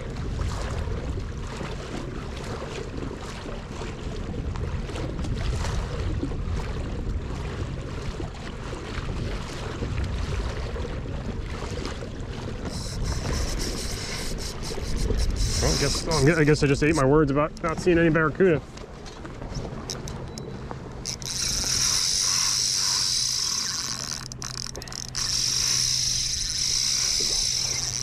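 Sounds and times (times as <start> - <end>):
wind buffeting microphone: 0.0 - 1.7, 4.0 - 28.0
water washing along hull: 0.0 - 28.0
fishing reel drag buzzing: 12.6 - 17.7, 19.8 - 20.4, 21.0 - 28.0.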